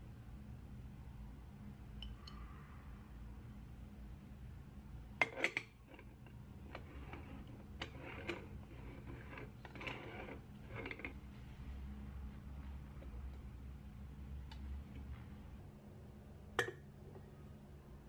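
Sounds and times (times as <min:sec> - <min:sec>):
metal pot parts scraping and rubbing: 0:05.2 - 0:11.2.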